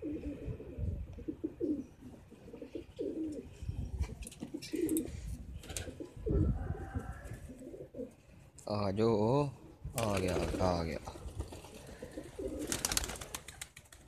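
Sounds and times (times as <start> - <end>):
pigeons cooing: 0.0 - 8.4, 11.2 - 13.7.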